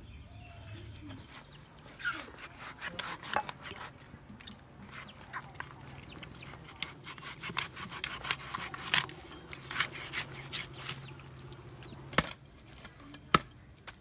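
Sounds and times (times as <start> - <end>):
knife cutting through bone: 2.0 - 3.9, 6.4 - 11.1.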